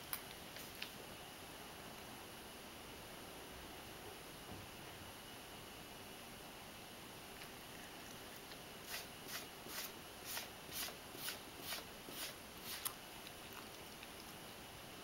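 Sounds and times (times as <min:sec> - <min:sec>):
cat crunching dry kibble: 0:12.6 - 0:14.4.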